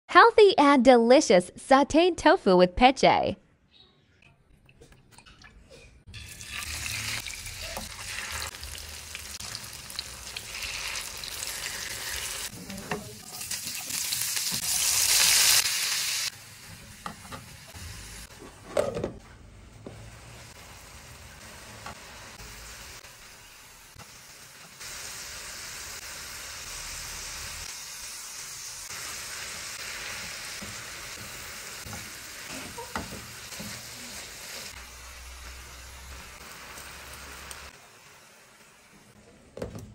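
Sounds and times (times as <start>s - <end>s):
food sizzling in oil: 6.1s - 18.3s, 20.0s - 39.1s.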